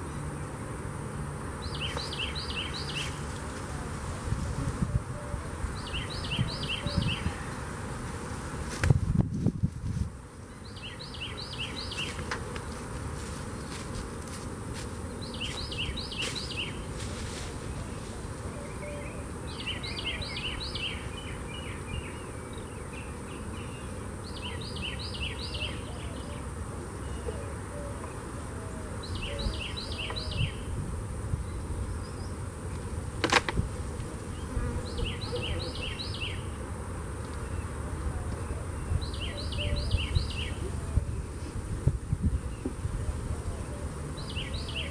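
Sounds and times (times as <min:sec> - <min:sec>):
honeybees buzzing: 0:00.0 - 0:44.9
bird singing short song: 0:01.6 - 0:03.2, 0:05.8 - 0:07.5, 0:10.6 - 0:12.2, 0:18.5 - 0:26.4, 0:29.0 - 0:30.7, 0:34.3 - 0:36.5, 0:38.4 - 0:41.2, 0:44.2 - 0:44.9.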